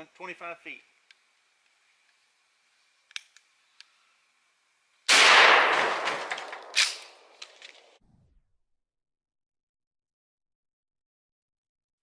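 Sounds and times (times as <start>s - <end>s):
shotgun blast: 5.1s - 7.2s.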